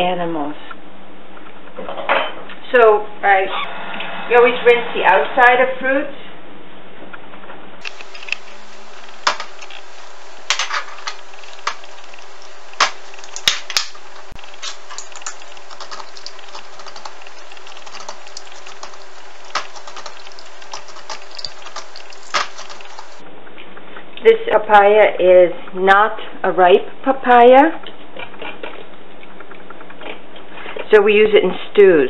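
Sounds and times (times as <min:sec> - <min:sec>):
background hiss: 0:07.8 - 0:23.2
faint hum: 0:07.8 - 0:23.6.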